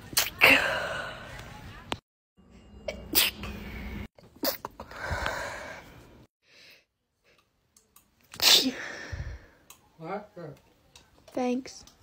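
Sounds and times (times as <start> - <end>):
woman sneezing: 8.4 - 8.9.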